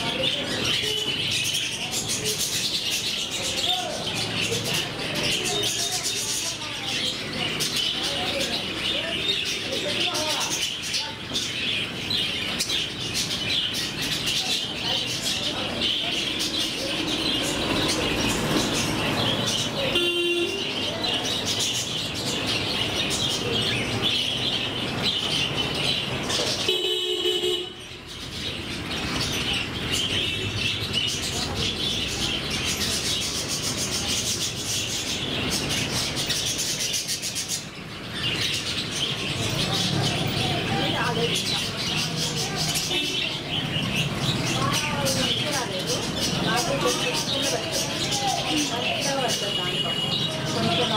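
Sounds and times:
budgerigars chattering: 0:00.0 - 0:50.9
vehicle horn toots: 0:20.0 - 0:20.6, 0:26.6 - 0:27.8.

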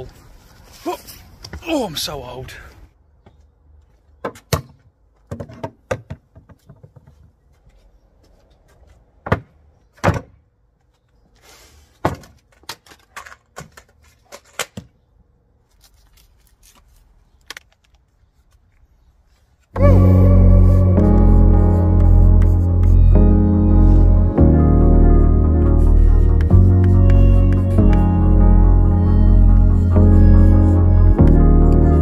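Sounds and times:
knocks and clunks on worktable: 0:04.2 - 0:07.3.

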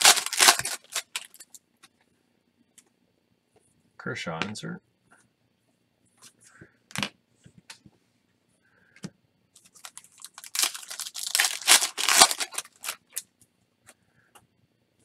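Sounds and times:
foil wrapper tearing and crinkling: 0:00.0 - 0:01.6, 0:09.6 - 0:13.2.

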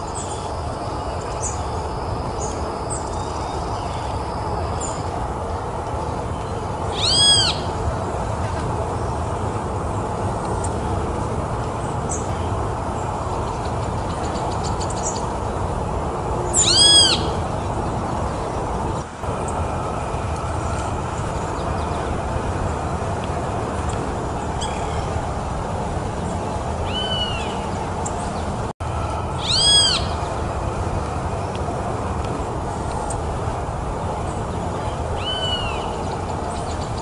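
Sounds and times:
steady background rumble: 0:00.0 - 0:37.0
mockingbird calls: 0:06.9 - 0:07.8, 0:29.4 - 0:30.4.

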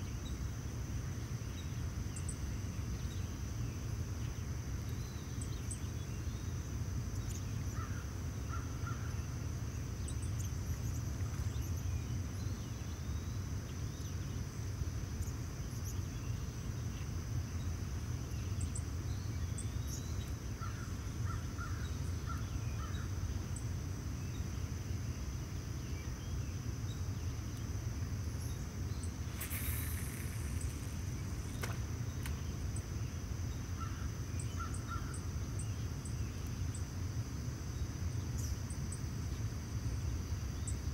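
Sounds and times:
bird calls: 0:28.5 - 0:32.6
short hiss: 0:29.2 - 0:32.4
high-pitched whine: 0:29.2 - 0:32.8.

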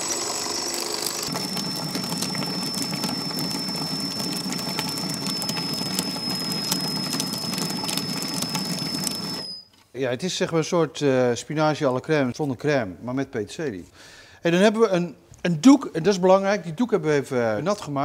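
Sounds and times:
food processor chopping: 0:00.0 - 0:09.4.

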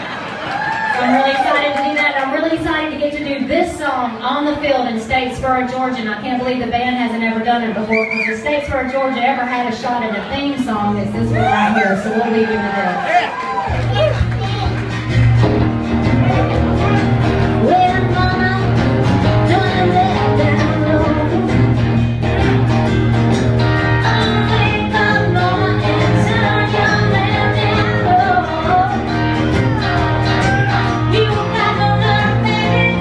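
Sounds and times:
electric guitar: 0:10.8 - 0:33.0
acoustic guitar: 0:13.6 - 0:33.0
woman singing: 0:17.6 - 0:21.9, 0:23.6 - 0:33.0.

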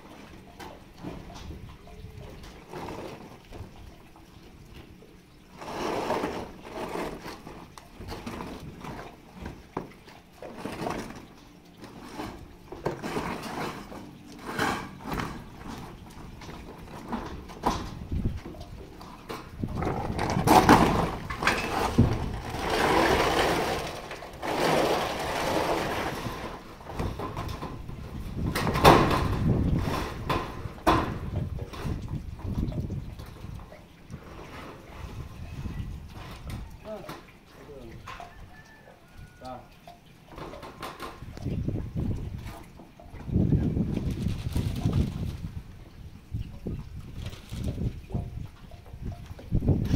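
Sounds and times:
metal sheet scraping and rumbling: 0:05.5 - 0:09.1, 0:10.5 - 0:18.6, 0:19.2 - 0:36.7.

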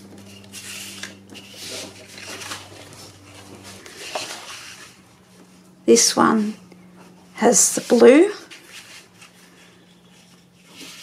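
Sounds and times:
paper sheets rustling and sliding: 0:00.1 - 0:05.5, 0:07.7 - 0:11.0.

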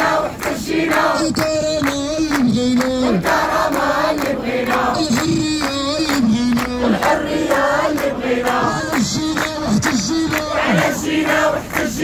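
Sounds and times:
crowd chanting in unison: 0:00.0 - 0:01.4, 0:02.8 - 0:05.4, 0:06.5 - 0:12.0.

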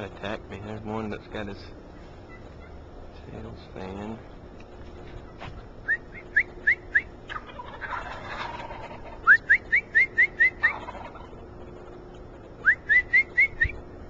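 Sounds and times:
bird whistling rising notes: 0:05.8 - 0:07.2, 0:09.2 - 0:10.9, 0:12.6 - 0:13.8.

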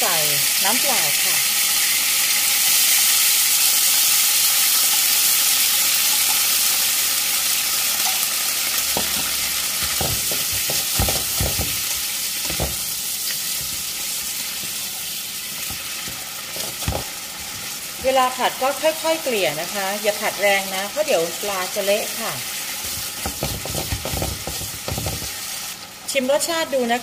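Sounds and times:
fish sizzling in frying pan: 0:00.0 - 0:27.0
spatula scraping pan: 0:22.7 - 0:25.5.

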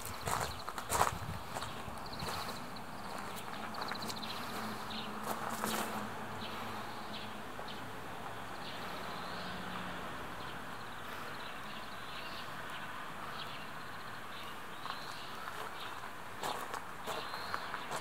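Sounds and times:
bird chirps: 0:17.1 - 0:18.0.

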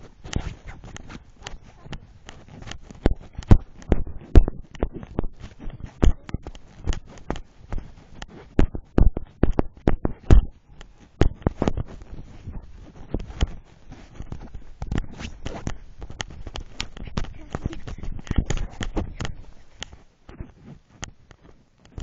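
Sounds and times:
phone handling knocks and rubbing: 0:01.6 - 0:13.6.

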